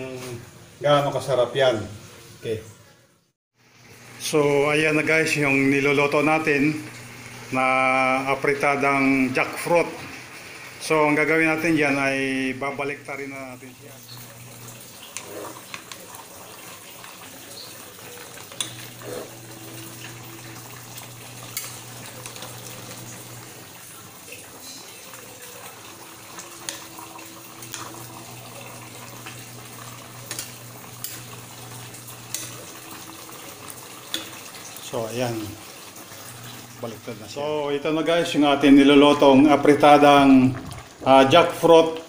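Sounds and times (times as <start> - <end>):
metal spatula scraping a pot: 18.5 - 19.4.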